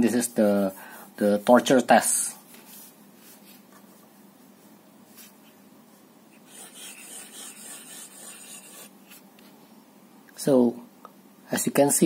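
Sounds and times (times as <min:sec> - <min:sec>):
fountain pen scratching on paper: 0:06.4 - 0:09.2.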